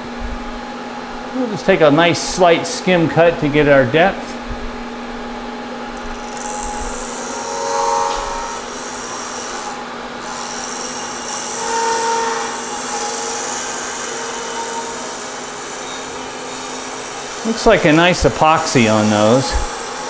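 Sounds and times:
motor hum: 4.4 - 20.0
milling cutter grinding: 6.0 - 20.0.

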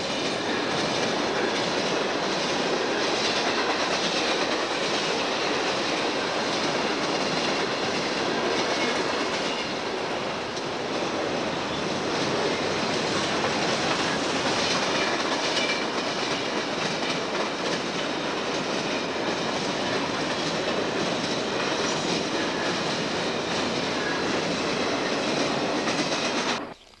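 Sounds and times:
freight train cars rumbling past: 0.0 - 26.7
wheels clacking on rail joints: 11.7 - 26.6.

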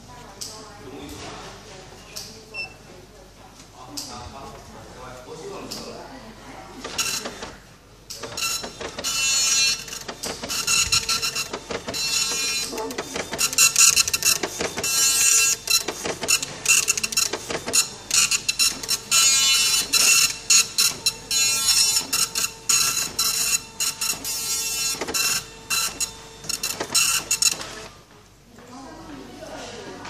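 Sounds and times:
dot-matrix printer printing: 6.7 - 28.1.

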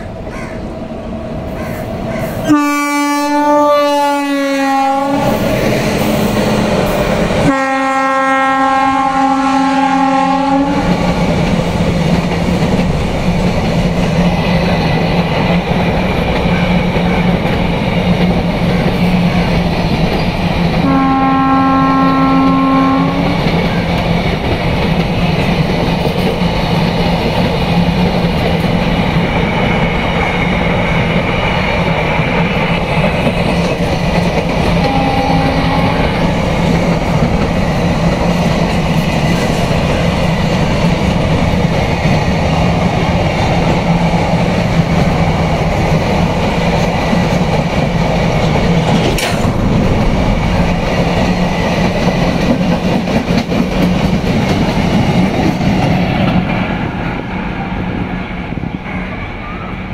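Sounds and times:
locomotive horn blasts: 2.2 - 5.4, 7.4 - 11.0, 20.8 - 23.4, 34.8 - 36.3
train wheels clacking on rails: 4.4 - 59.7.

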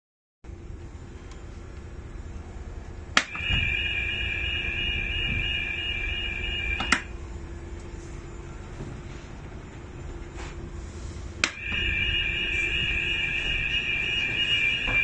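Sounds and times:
low engine drone: 0.5 - 15.0
two-tone alarm: 3.2 - 7.2, 11.4 - 15.0.

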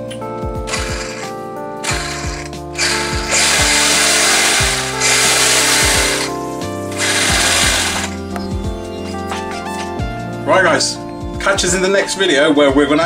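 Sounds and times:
electronic music with thudding beat: 0.5 - 8.9.

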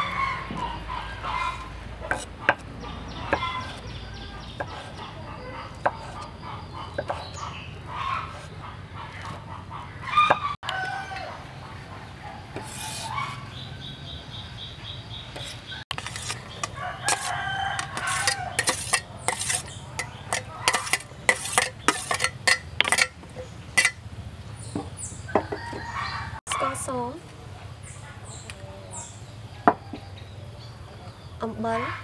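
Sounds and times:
rooster crowing: 0.0 - 1.7, 10.0 - 14.0, 16.6 - 18.8, 25.3 - 26.4
chickens clucking: 0.0 - 32.0.

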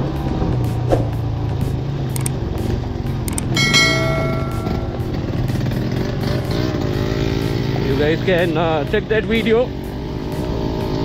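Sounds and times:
bell-like ringing tone: 3.6 - 5.8.

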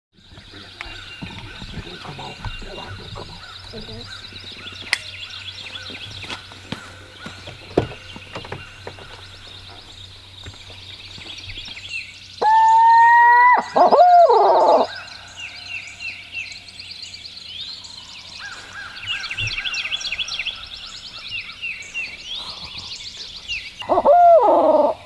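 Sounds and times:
songbirds chirping: 0.1 - 25.0
owl call hoots: 12.4 - 16.0, 23.8 - 25.0.

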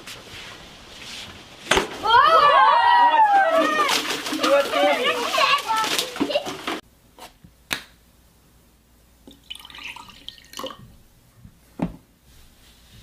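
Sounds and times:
liquid trickling into glass: 9.3 - 10.8.

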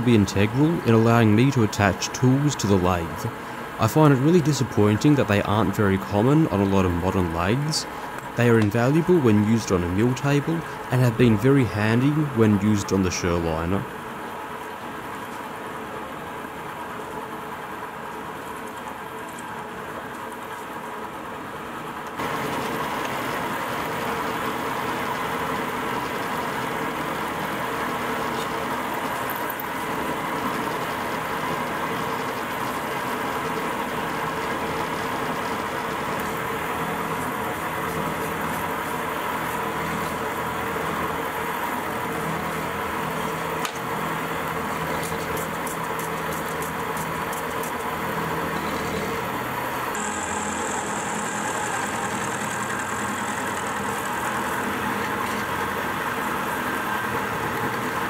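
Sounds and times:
milling machine cutting steel: 22.2 - 58.0.

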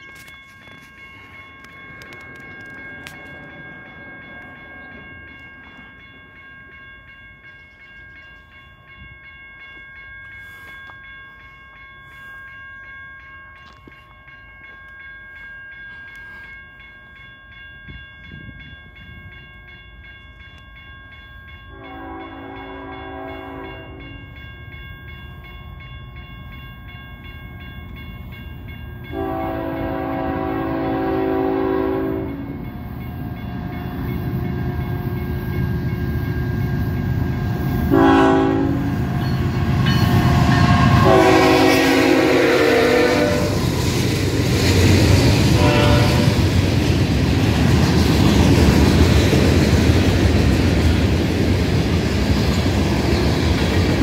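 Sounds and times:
train horn: 21.7 - 24.2, 29.1 - 32.6, 37.8 - 39.0, 40.5 - 43.7, 45.5 - 46.4.

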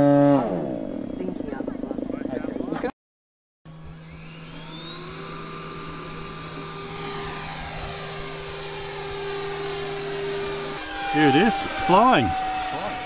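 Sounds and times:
electric ducted fan whining: 3.7 - 13.0.

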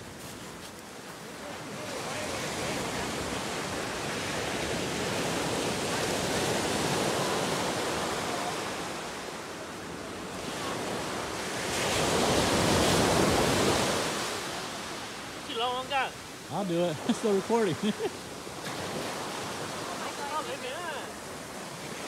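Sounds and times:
ocean surf breaking on beach: 0.0 - 22.0.

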